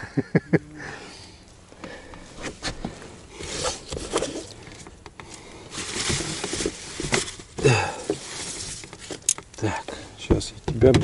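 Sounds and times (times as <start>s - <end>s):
handling clicks and rustling: 2.5s - 11.0s.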